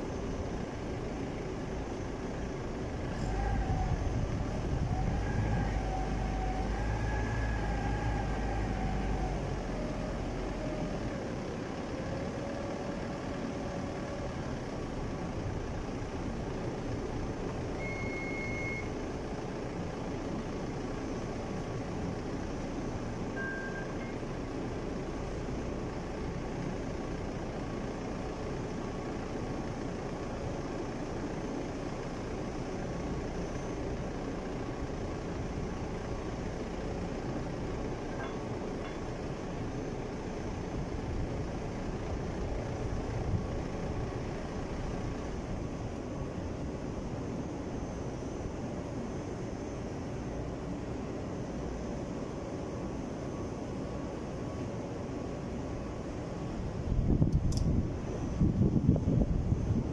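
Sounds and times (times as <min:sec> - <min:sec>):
forklift engine idling: 0:00.0 - 0:49.4
short high beep: 0:17.8 - 0:18.9, 0:23.4 - 0:24.2.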